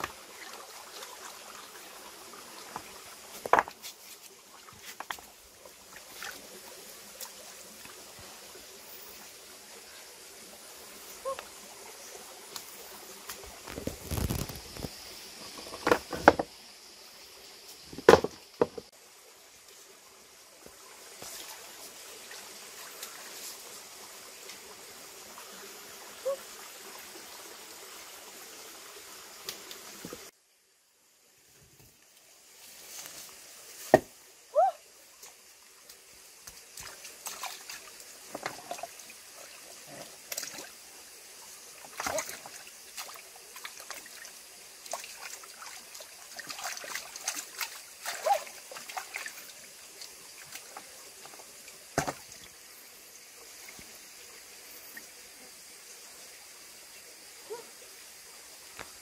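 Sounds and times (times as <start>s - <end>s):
stream trickling over rocks: 0.0s - 59.0s
stones knocking: 3.4s - 3.8s, 18.0s - 18.9s, 52.0s - 52.2s.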